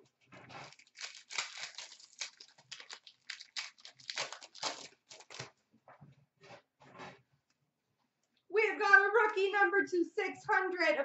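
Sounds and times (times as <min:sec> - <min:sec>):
cards and foil wrapper rustling: 0:00.5 - 0:05.5.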